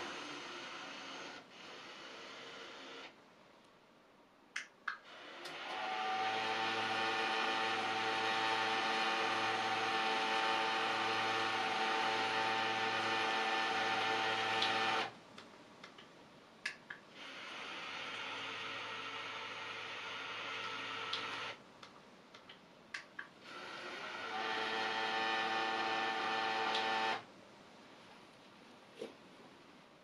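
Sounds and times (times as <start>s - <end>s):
blind motors whirring: 5.1s - 15.1s, 17.2s - 21.6s, 23.4s - 27.3s
sharp clicks: 15.4s - 17.1s, 20.7s - 23.4s.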